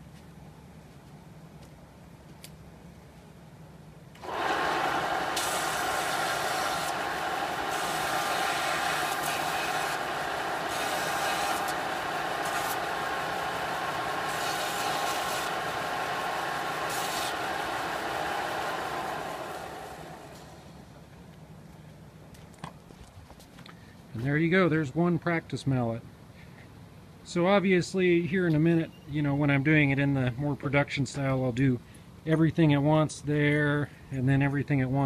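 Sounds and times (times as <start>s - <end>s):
belt sander whining: 4.2s - 20.8s.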